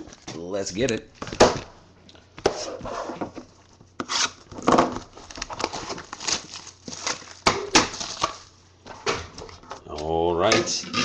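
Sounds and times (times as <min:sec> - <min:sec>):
wrapping tearing and crinkling: 0:03.6 - 0:08.6.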